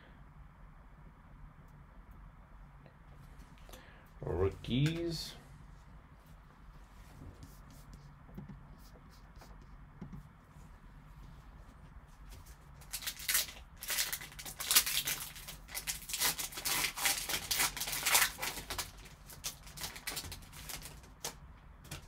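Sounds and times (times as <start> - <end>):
wrapper tearing and crinkling: 12.8 - 22.0.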